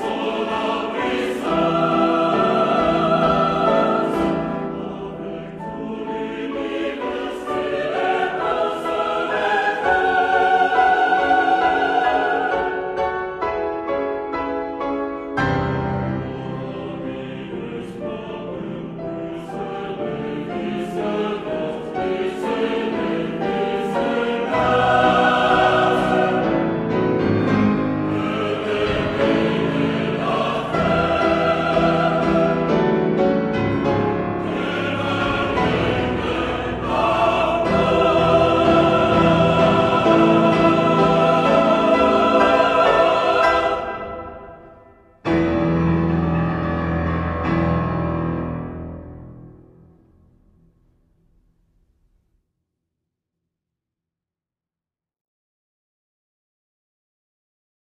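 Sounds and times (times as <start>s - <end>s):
mixed chorus singing: 0.0s - 13.4s, 15.4s - 45.5s
piano chords: 0.0s - 50.4s.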